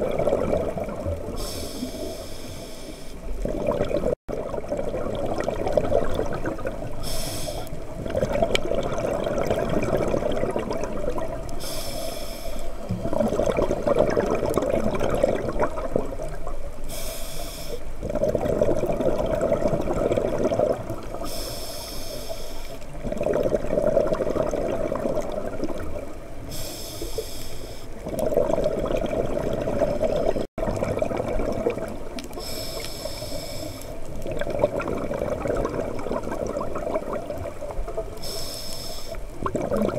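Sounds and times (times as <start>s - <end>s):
exhaust bubbling underwater: 0.0s - 2.1s, 3.3s - 11.7s, 12.8s - 16.6s, 18.0s - 21.4s, 22.9s - 26.4s, 28.0s - 32.8s, 34.0s - 38.3s, 39.2s - 39.9s
regulator inhale hiss: 1.3s - 3.3s, 7.0s - 7.8s, 11.6s - 13.2s, 16.8s - 17.9s, 21.2s - 22.9s, 26.4s - 28.0s, 32.3s - 34.1s, 38.2s - 39.3s.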